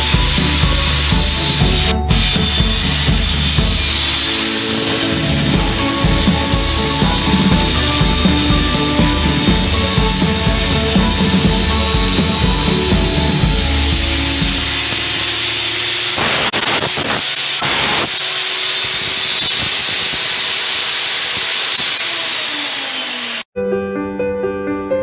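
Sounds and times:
background music: 0.0 - 15.6
table saw cutting wood: 0.0 - 23.5.

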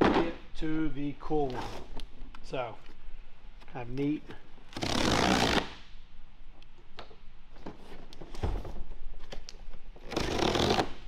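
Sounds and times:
packing tape ripping: 4.7 - 5.8.

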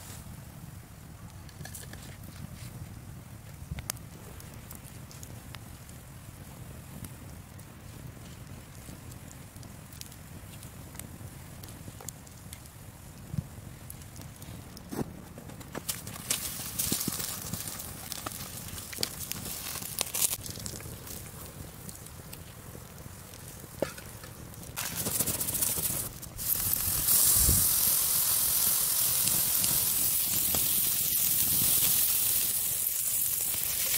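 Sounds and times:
wood fire crackling and popping: 0.0 - 33.9
meat sizzling on grill: 24.8 - 33.9.

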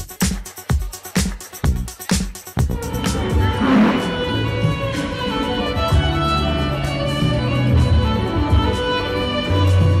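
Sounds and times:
low bass accompaniment: 2.6 - 8.6
violin melody: 2.8 - 10.0.

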